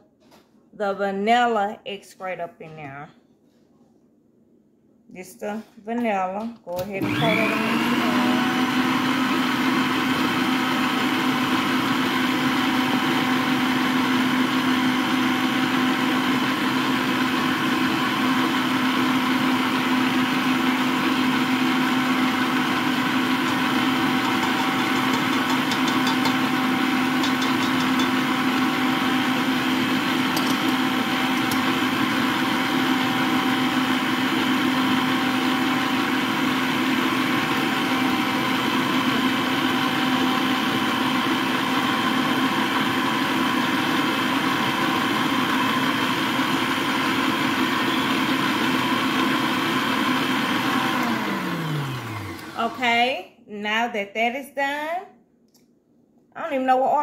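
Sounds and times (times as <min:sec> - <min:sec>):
stand mixer motor humming: 0:07.0 - 0:52.8.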